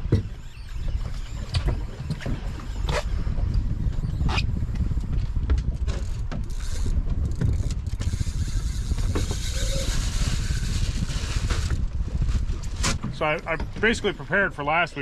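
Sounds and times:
wind and water rumble: 0:00.0 - 0:15.0.

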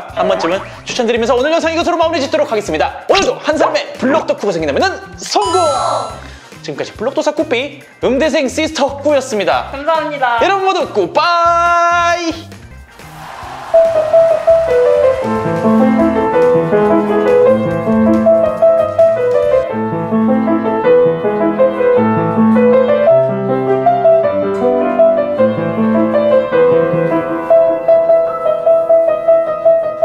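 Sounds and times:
grand piano melody over chords: 0:13.8 - 0:30.0.

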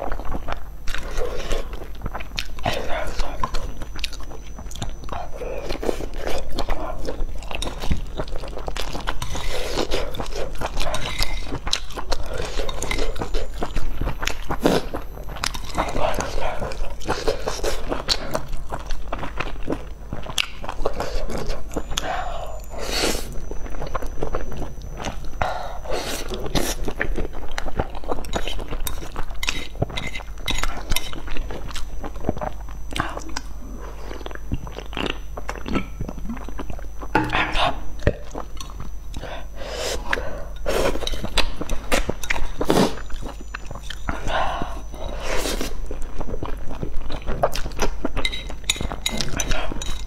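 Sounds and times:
slurping and chewing noodles: 0:00.0 - 0:50.0.

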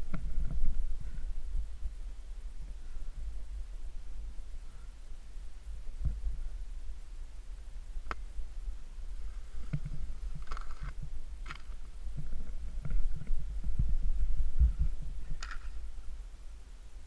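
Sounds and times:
wind buffeting microphone: 0:08.0 - 0:16.2.

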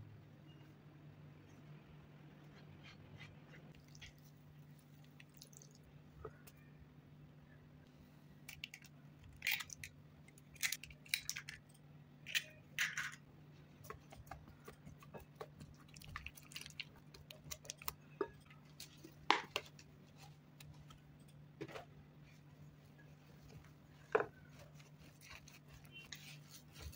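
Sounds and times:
faint steady hum: 0:00.0 - 0:26.9
squeezing wet vegetable in cloth: 0:02.5 - 0:05.9, 0:14.0 - 0:19.2, 0:22.9 - 0:26.9.

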